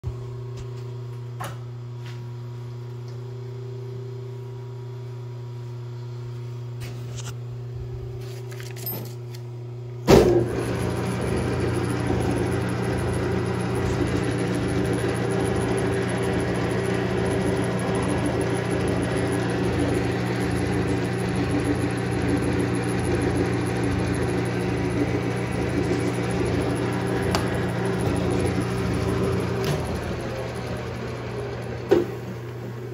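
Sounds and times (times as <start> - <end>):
lathe starting clunk: 10.0 - 32.9
lathe spindle whirring: 10.3 - 32.9.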